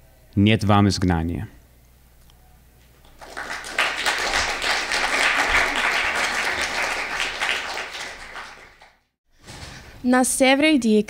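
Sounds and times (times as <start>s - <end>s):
audience applauding: 3.1s - 9.0s.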